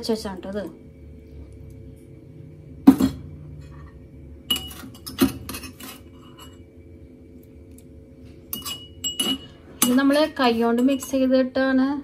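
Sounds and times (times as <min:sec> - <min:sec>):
kitchenware clinking: 0:02.8 - 0:06.7, 0:08.4 - 0:11.5.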